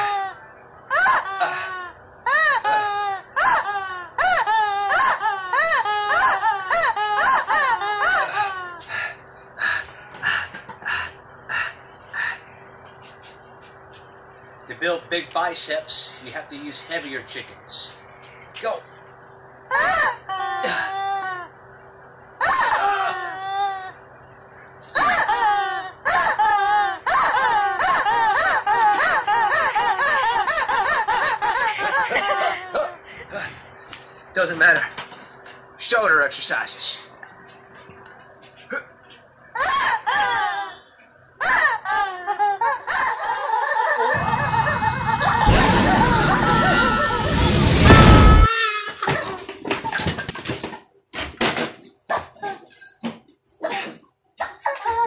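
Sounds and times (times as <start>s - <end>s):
rubber chickens squawking: 0.0s - 12.5s, 19.7s - 21.6s, 22.4s - 24.0s, 24.8s - 33.1s, 39.4s - 49.3s.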